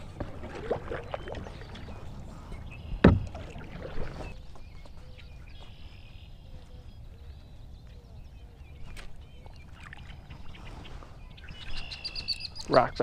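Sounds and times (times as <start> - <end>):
faint bird chirps: 0.9 - 13.0.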